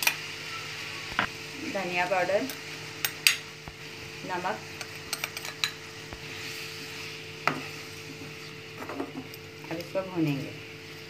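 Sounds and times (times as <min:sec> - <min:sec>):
chicken sizzling in oil: 0:00.0 - 0:11.0
spoon stirring and clicking on pan: 0:04.8 - 0:05.8.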